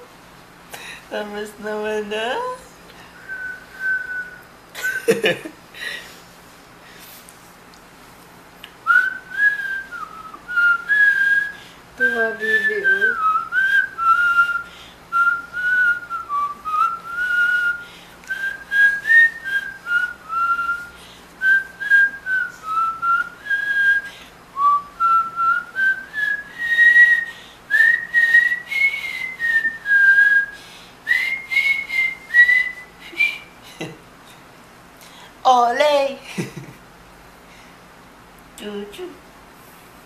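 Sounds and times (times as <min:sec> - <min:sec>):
person whistling a slow tune: 0:03.2 - 0:04.5, 0:08.8 - 0:33.6.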